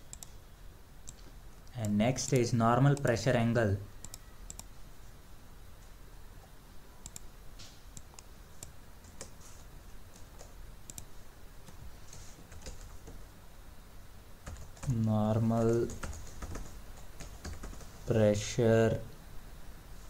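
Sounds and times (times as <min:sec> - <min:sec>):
low steady hum: 0:00.0 - 0:20.0
computer mouse clicks: 0:00.1 - 0:00.4, 0:01.0 - 0:03.2, 0:04.0 - 0:04.7, 0:07.0 - 0:09.4, 0:10.2 - 0:11.1.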